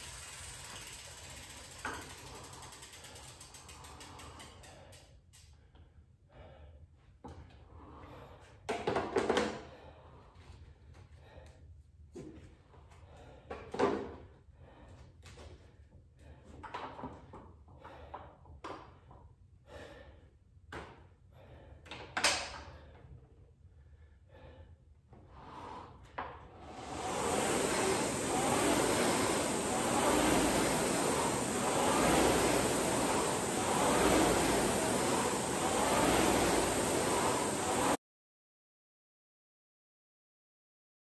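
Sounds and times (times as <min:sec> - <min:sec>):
rowing machine flywheel whooshing: 0:00.0 - 0:05.0, 0:25.2 - 0:38.0.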